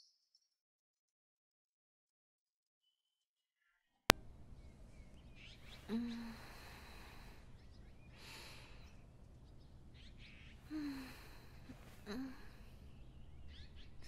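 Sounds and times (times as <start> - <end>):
birds chirping softly: 4.1 - 14.0
woman's sleepy murmur: 5.7 - 7.4, 10.6 - 12.8.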